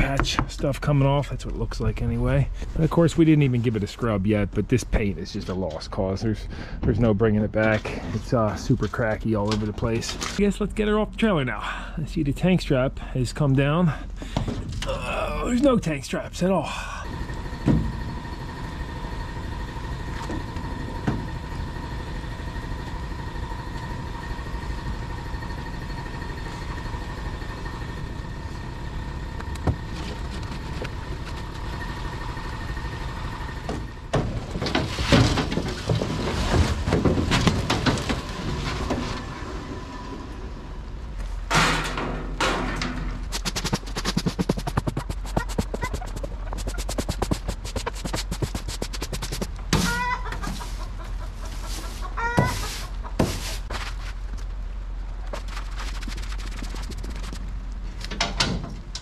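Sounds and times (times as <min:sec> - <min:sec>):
high whine over rumbling: 0:14.6 - 0:49.8, 0:54.2 - 0:58.1.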